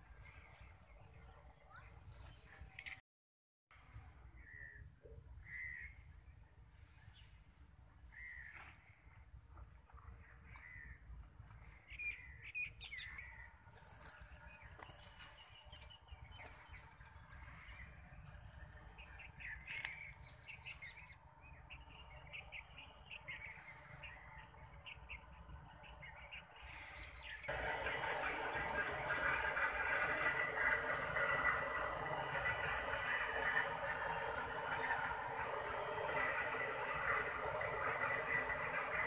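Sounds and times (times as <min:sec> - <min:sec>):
birds chirping: 0:11.6 - 0:39.0.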